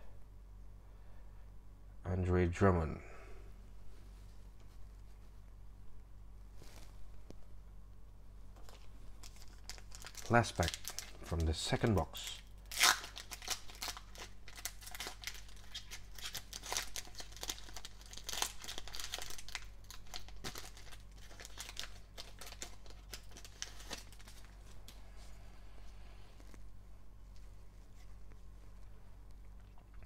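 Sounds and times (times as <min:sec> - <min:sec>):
foil wrapper crinkling and tearing: 0:08.6 - 0:25.0.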